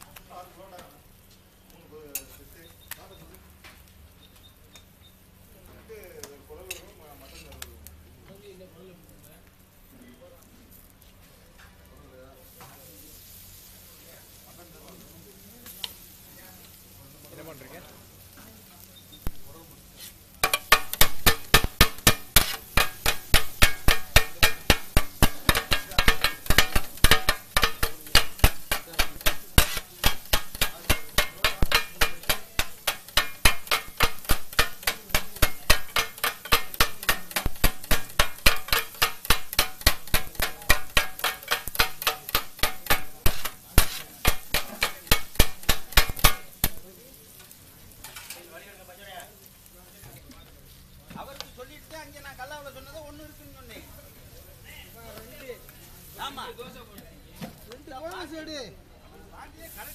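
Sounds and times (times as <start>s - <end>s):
metal blades chopping on iron griddle: 20.4s - 46.9s.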